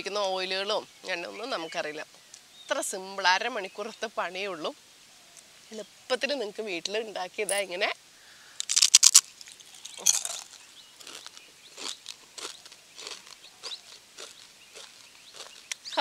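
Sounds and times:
crunchy cookie bitten and chewed: 8.6s - 16.0s.

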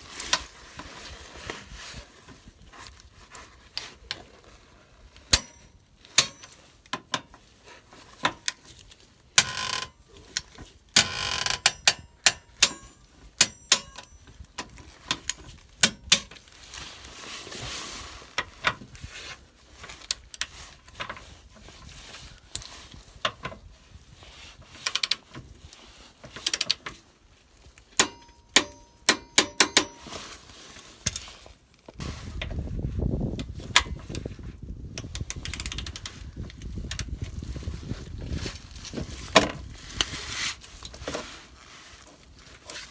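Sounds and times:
hand ratchet clicking: 35.0s - 36.2s.

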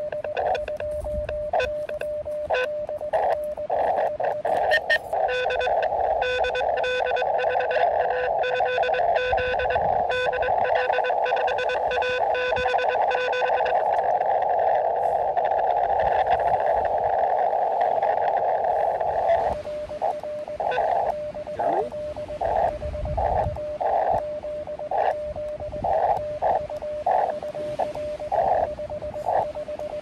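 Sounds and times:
sharp clicks: 0.0s - 7.8s, 19.0s - 30.0s
morse code tones: 0.0s - 30.0s
radio receiver hiss: 0.0s - 30.0s.

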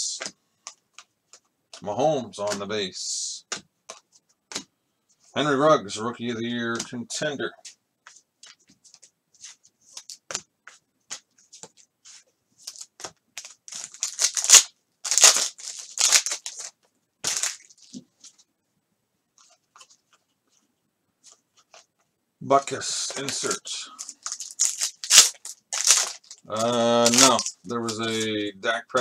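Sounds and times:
cards rustling and ticking: 0.1s - 2.7s, 6.7s - 18.5s, 19.3s - 22.0s, 22.6s - 29.0s
foil wrapper crackling and tearing: 12.7s - 18.0s, 23.2s - 28.4s.

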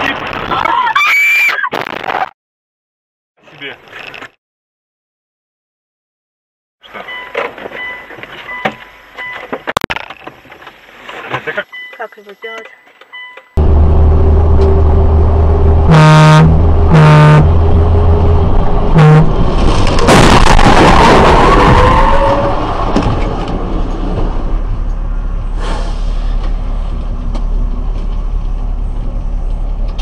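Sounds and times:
engine and road noise: 3.4s - 4.4s, 6.8s - 30.0s
traffic noise: 6.8s - 30.0s
car horn blasts: 15.8s - 17.6s, 19.0s - 19.4s
car collision crunch and scraping: 19.5s - 22.2s.

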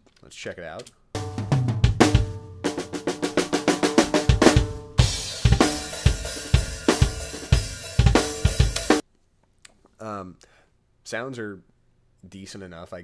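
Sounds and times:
drum hits: 1.2s - 9.0s
kick and snare beat: 1.2s - 9.0s.

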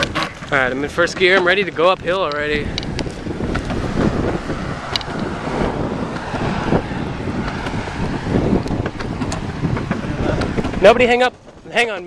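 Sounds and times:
rolling rumble of bicycle: 0.0s - 12.0s
wind rushing over microphone: 0.0s - 12.0s
sharp clicks: 4.8s - 5.3s.

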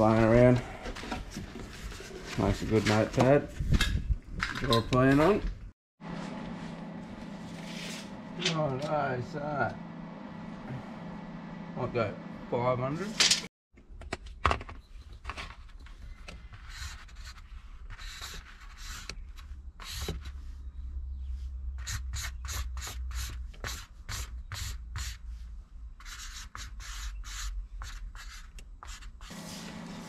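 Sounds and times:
pen scratching on paper: 26.0s - 29.3s.

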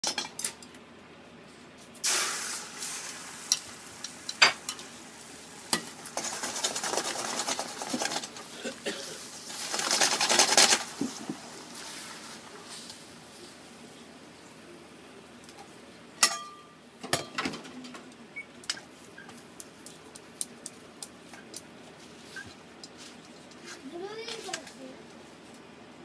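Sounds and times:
egg sizzling in frying pan: 2.0s - 13.7s.

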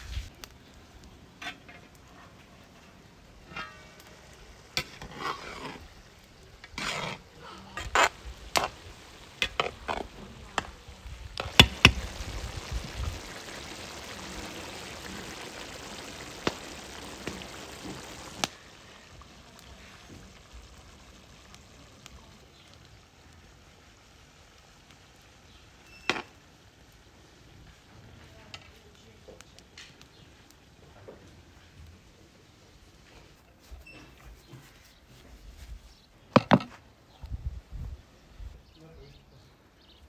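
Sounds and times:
meat sizzling: 0.0s - 33.5s
metal scraping on cauldron: 1.4s - 6.0s, 6.6s - 8.8s
metal clanks: 3.4s - 4.1s.

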